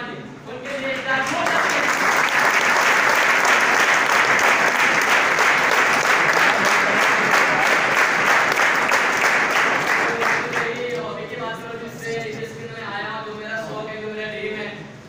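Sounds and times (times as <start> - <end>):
crowd applauding: 0.9 - 10.9.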